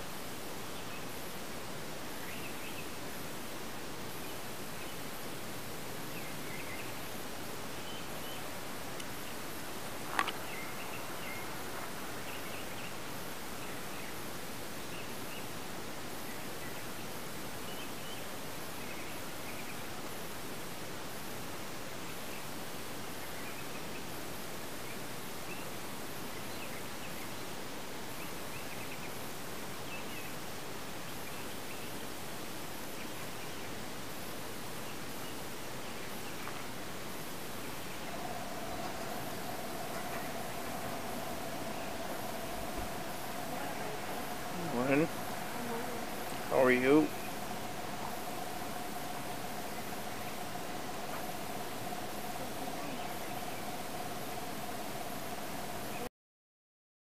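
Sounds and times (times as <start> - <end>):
steady background hiss: 0.0 - 56.1
faint bird chirps: 37.9 - 56.1.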